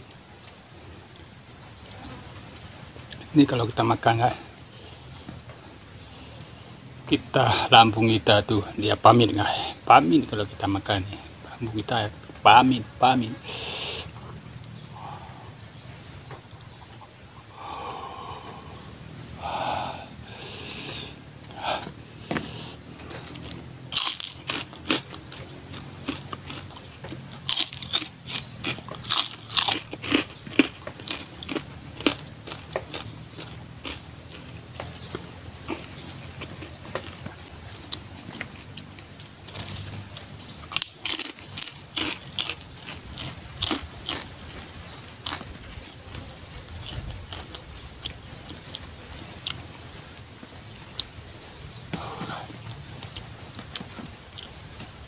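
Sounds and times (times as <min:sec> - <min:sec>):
crisp chewing crunches: 0:23.0 - 0:38.9, 0:39.5 - 0:49.6.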